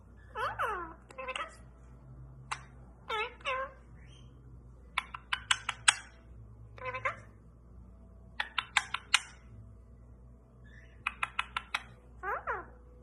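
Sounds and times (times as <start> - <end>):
parakeet call: 0.2 - 1.7, 6.8 - 7.4, 10.6 - 12.8
parakeet clicking: 2.4 - 2.8, 4.9 - 6.2, 8.4 - 9.4, 11.0 - 12.0.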